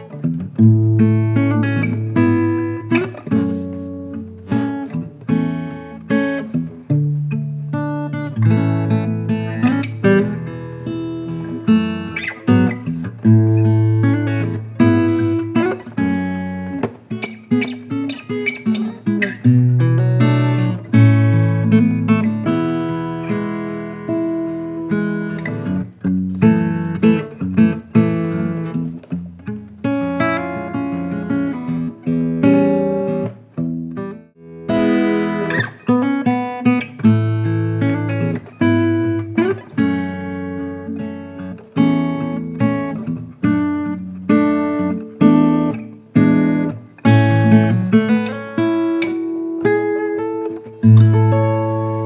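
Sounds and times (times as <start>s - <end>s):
acoustic guitar plucked and strummed: 0.0s - 52.0s.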